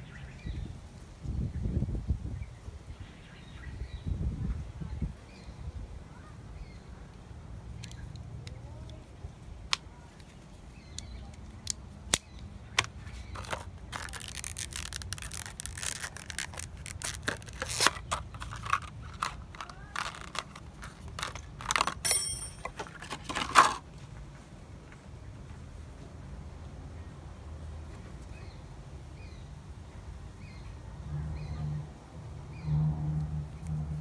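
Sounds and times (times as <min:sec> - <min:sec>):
plastic packaging crinkling: 0:12.8 - 0:22.0.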